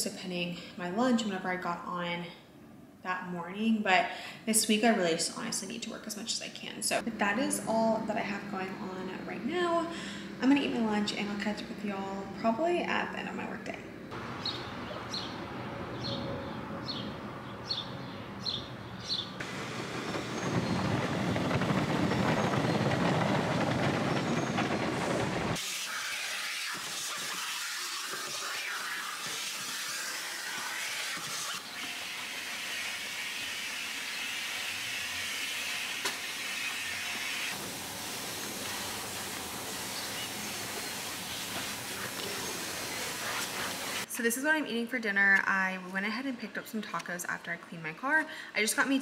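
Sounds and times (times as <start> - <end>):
hissing spray washing car: 19.4 - 22.8, 25.4 - 44.1.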